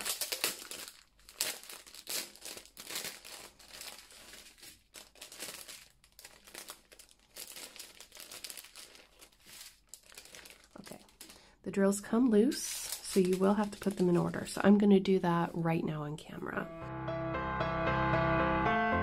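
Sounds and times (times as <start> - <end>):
plastic bags crinkling: 0.0 - 14.8.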